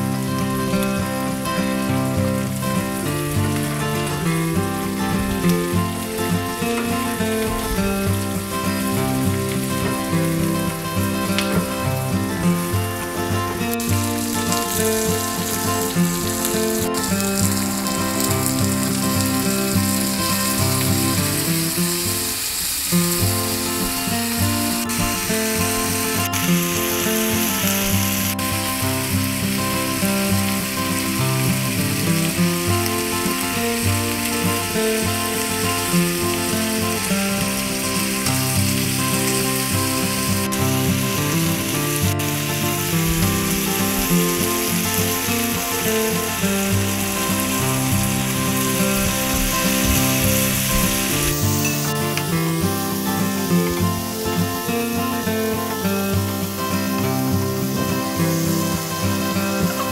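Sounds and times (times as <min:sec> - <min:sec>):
background music: 0:00.0 - 0:22.5
vegetables sizzling in a pan: 0:00.0 - 0:59.9.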